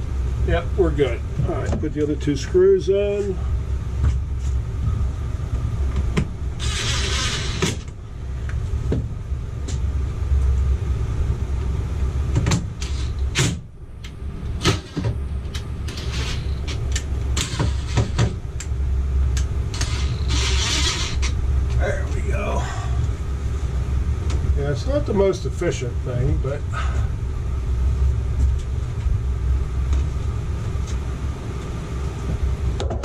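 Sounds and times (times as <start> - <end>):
steady low rumble: 0.0 - 33.0
cordless drill running: 19.8 - 21.2.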